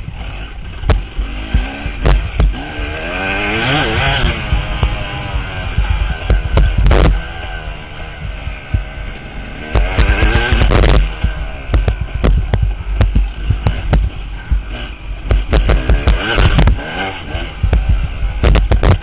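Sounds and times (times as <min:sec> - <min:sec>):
dirt bike engine revving: 0:00.0 - 0:19.0
knocks from rough track: 0:00.7 - 0:07.4, 0:09.6 - 0:19.0
wind buffeting microphone: 0:01.8 - 0:09.2.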